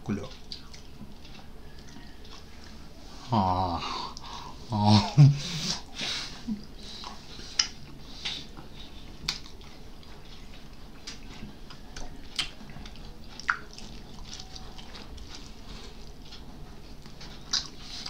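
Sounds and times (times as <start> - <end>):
wet chewing: 0.3 - 3.0, 6.6 - 18.0
lip smacks: 6.6 - 16.4, 17.0 - 18.0.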